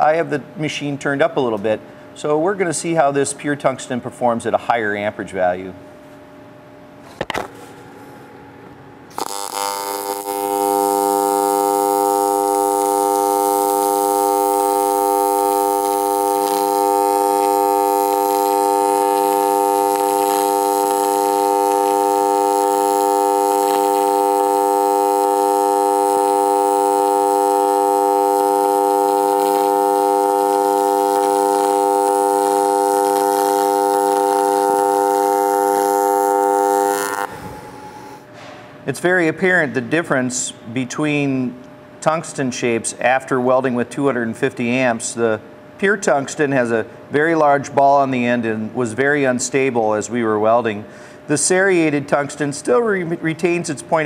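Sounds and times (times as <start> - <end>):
welding arc buzzing hum: 6.7 - 38.3.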